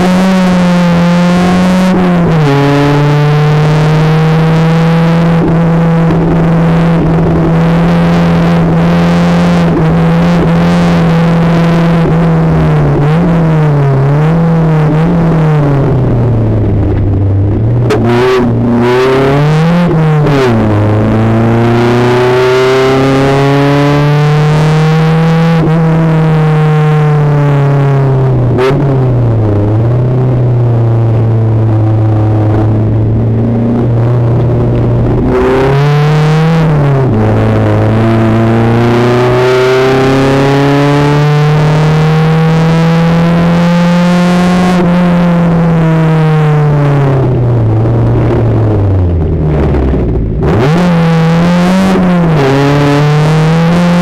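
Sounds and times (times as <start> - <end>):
race car engine revving: 0.0 - 54.0.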